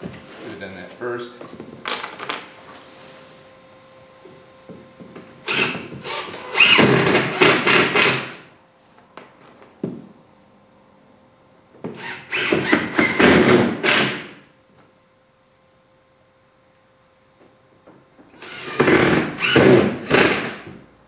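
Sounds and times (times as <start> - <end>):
cordless drill boring into wood: 5.5 - 8.3, 12.0 - 14.2, 18.4 - 20.5.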